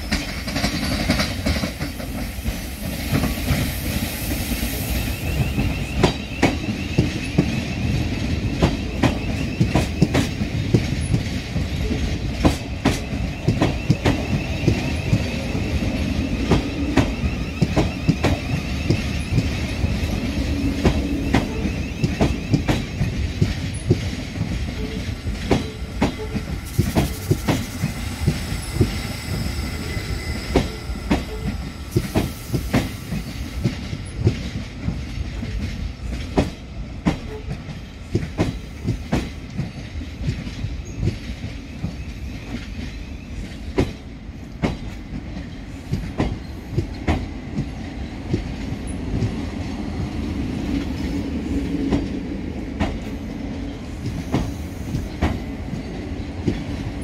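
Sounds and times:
train wheels clicking over rail joints: 0.0s - 4.5s, 5.1s - 57.0s
train running rumble: 0.0s - 57.0s.

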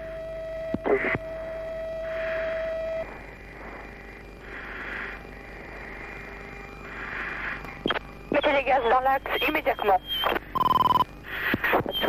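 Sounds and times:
steady tone: 0.0s - 11.0s
breathing through oxygen mask: 2.0s - 7.8s, 11.2s - 11.8s.

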